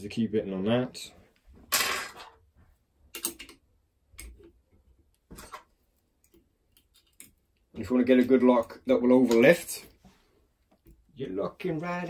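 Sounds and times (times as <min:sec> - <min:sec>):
lock picks clicking and scraping: 0:06.2 - 0:07.6.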